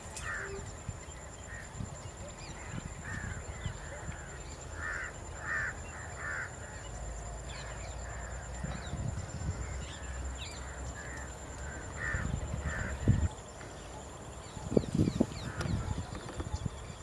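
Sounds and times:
crows cawing: 0.2s - 0.6s, 2.6s - 6.8s, 10.0s - 13.3s, 15.4s - 15.8s.

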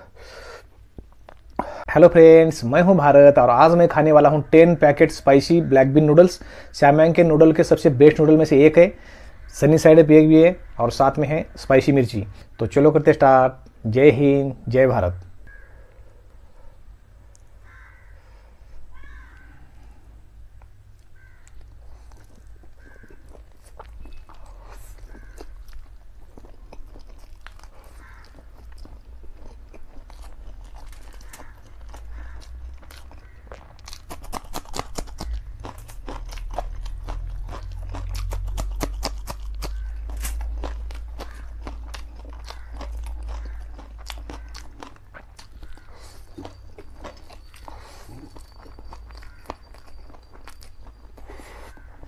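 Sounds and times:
low steady hum: 0.0s - 52.0s
wet chewing: 20.9s - 52.0s.

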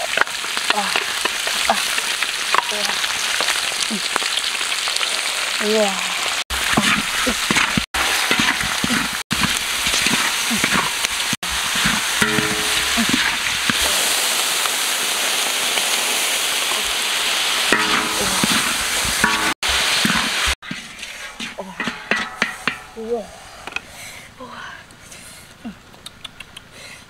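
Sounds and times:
fish sizzling in a wok: 0.0s - 24.3s
stirring tool scraping wok: 6.5s - 13.9s, 17.7s - 23.8s.

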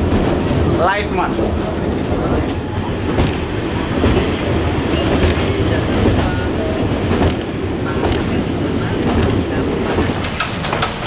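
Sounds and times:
train rumble inside carriage: 0.0s - 11.0s
wheels clacking over rail joints: 2.0s - 11.0s.

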